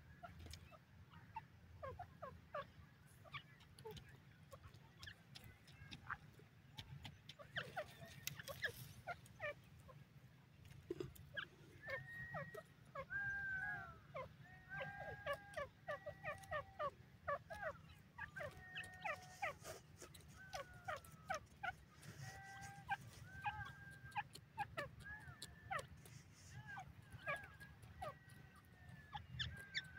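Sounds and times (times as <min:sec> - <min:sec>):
faint clicks: 0:03.3 - 0:09.9
francolin calling: 0:10.9 - 0:29.9.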